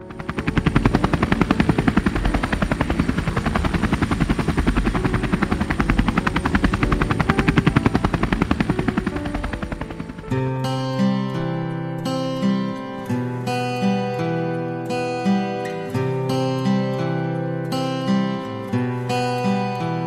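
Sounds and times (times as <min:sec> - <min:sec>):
helicopter rotor chop: 0:00.0 - 0:12.8
helicopter turbine running: 0:00.0 - 0:14.2.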